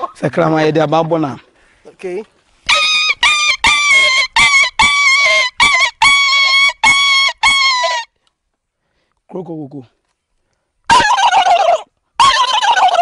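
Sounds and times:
man imitating dog yelps: 2.7 - 8.1, 10.9 - 13.0.

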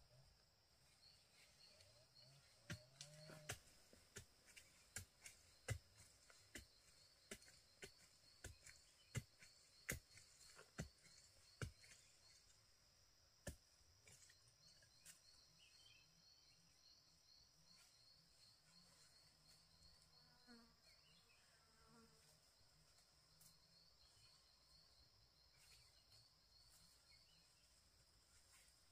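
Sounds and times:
digging tool knocking soil: 2.6 - 12.0.

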